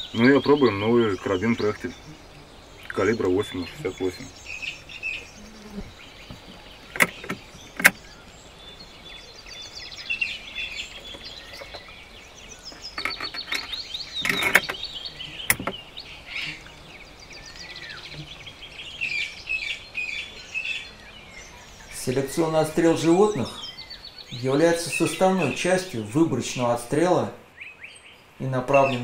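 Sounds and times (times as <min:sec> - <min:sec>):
songbirds chirping and singing: 0:00.0 - 0:29.0
rifle handling clicks and knocks: 0:06.3 - 0:08.0, 0:12.7 - 0:14.8, 0:15.5 - 0:15.8.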